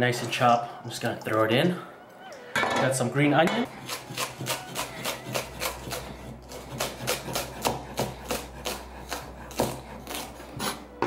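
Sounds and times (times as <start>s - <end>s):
cleaver chopping on wooden board: 6.7s - 9.8s.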